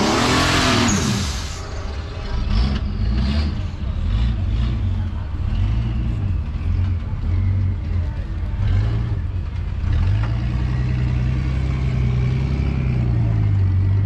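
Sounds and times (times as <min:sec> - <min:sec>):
off-road vehicle engine revving: 0:00.0 - 0:14.0.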